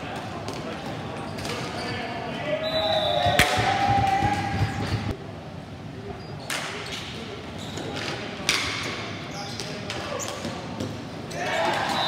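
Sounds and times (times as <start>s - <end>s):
hockey sticks clacking ball: 6.5s - 12.0s.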